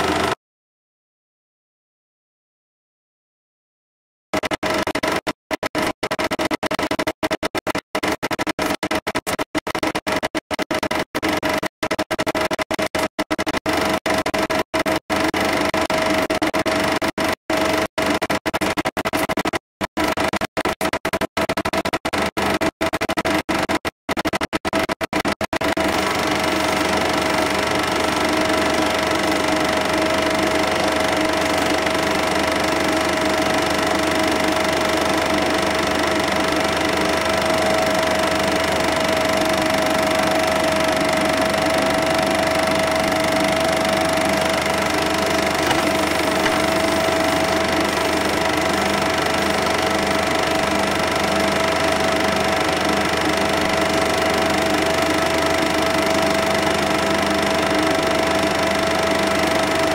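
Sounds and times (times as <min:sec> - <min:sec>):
film projector whirring: 0:00.0 - 0:00.4, 0:04.4 - 0:59.9.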